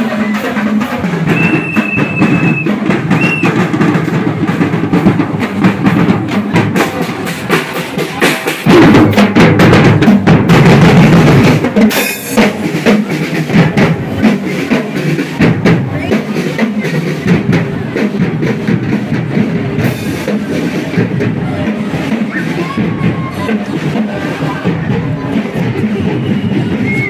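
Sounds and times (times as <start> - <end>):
marching snare and bass drums: 0.0 - 27.0
whistle blasts: 1.3 - 3.6, 26.0 - 27.0.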